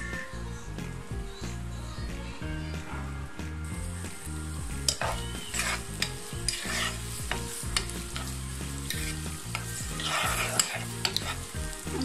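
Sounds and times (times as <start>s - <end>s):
onions sizzling in hot oil: 3.4s - 12.0s
spatula scraping a pot: 4.8s - 11.6s.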